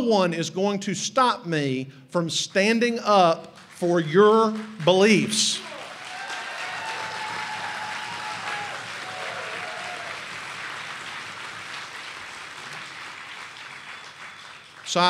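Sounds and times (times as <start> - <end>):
audience applauding: 3.6 - 15.0.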